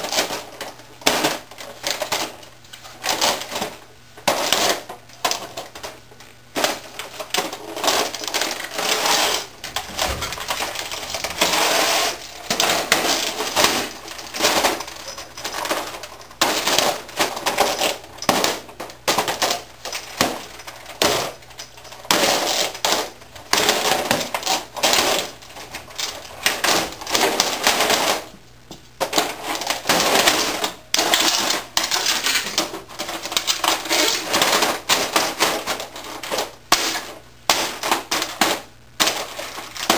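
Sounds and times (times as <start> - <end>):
loose parts clattering: 6.6 - 28.3
boots stomping on plastic: 9.6 - 14.9.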